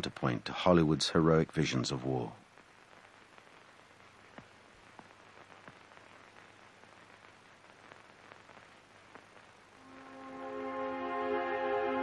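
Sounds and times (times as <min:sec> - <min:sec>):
faint steady hiss: 0:00.0 - 0:12.0
small clicks and crackles: 0:01.6 - 0:09.8.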